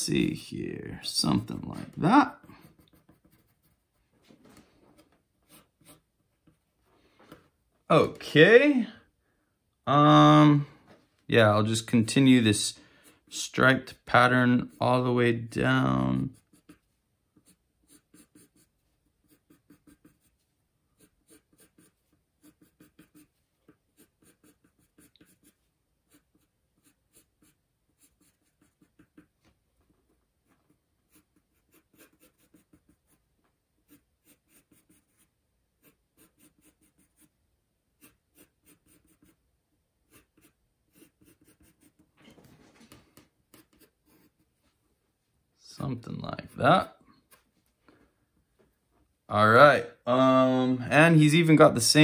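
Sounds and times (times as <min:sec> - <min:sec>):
pencil strokes on paper: 0:01.1 - 0:04.2, 0:15.8 - 0:37.4, 0:38.0 - 0:42.1, 0:43.2 - 0:44.8.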